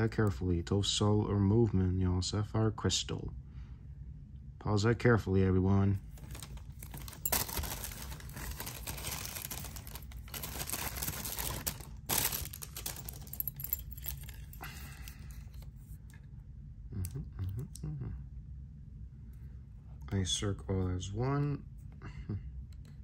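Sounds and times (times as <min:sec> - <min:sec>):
plastic packaging crinkling: 0:06.0 - 0:15.6.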